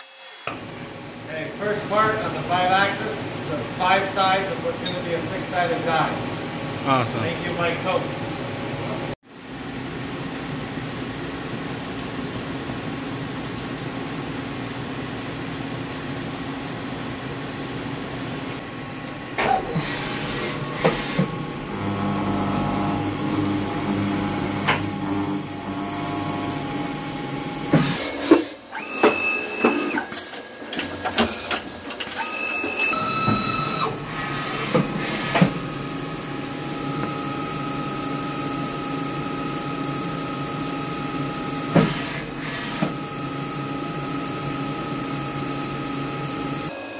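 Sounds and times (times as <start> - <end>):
machine hum: 18.6 - 28.2, 32.9 - 46.7
high machine whine: 18.6 - 46.9
mechanical clicks and whirs: 19.0 - 22.5, 27.7 - 35.9.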